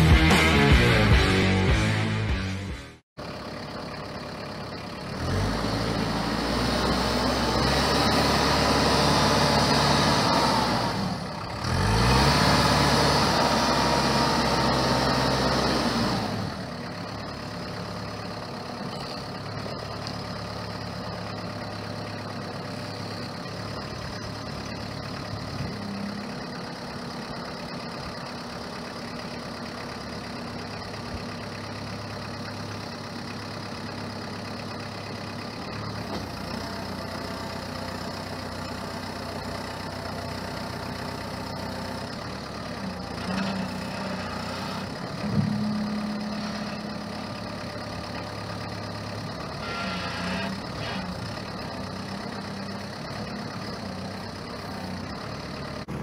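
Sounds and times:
diesel engine revving and idling: 0.0 - 56.0.

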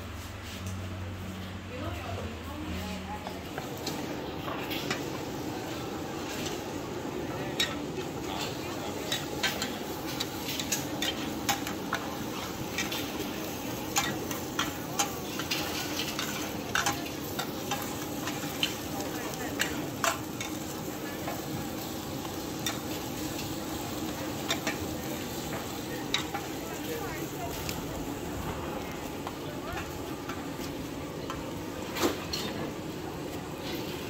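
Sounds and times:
metal utensils clacking on a wok: 7.3 - 27.8, 31.2 - 32.7.

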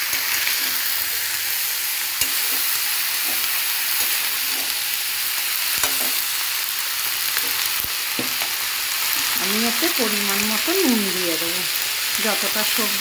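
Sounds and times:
vegetables sizzling in a pan: 0.0 - 13.0
metal spatula scraping pan: 2.2 - 4.8.

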